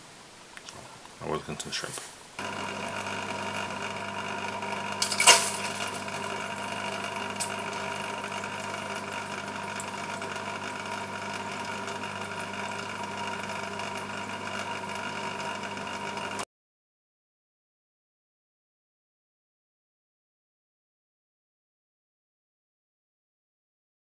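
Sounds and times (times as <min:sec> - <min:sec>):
small electric motor humming: 0:02.4 - 0:16.4.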